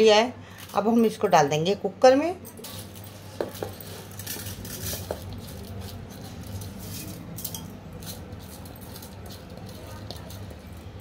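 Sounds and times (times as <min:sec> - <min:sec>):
seeds pattering into a pot: 0:02.7 - 0:11.0.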